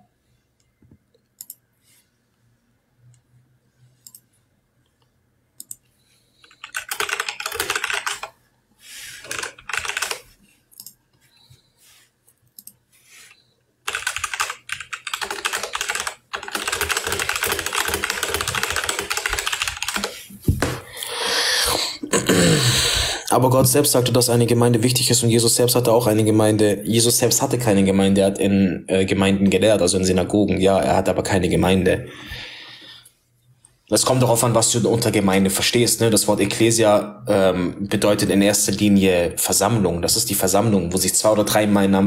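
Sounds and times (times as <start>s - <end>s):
typing on a keyboard: 6.4s - 8.4s, 9.2s - 11.0s, 13.9s - 20.2s.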